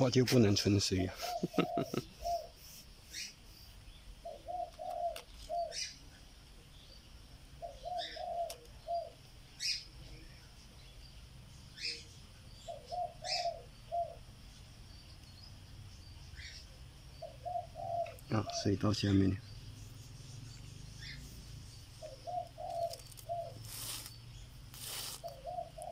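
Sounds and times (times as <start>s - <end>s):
small bird chirps: 0.0s - 25.9s
dove cooing: 1.1s - 3.3s, 4.2s - 5.9s, 7.6s - 10.2s, 11.8s - 14.3s, 16.4s - 19.1s, 20.9s - 24.0s, 24.8s - 25.9s.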